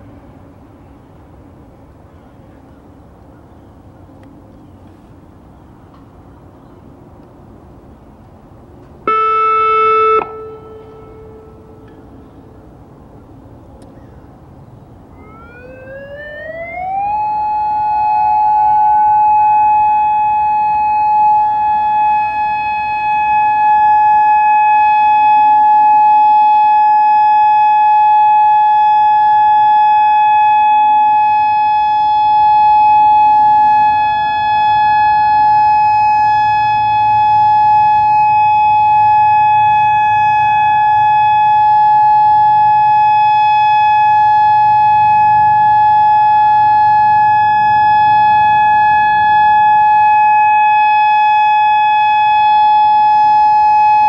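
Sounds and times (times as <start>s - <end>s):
electronic siren steady tone: 9.1s - 11.9s, 15.1s - 54.0s.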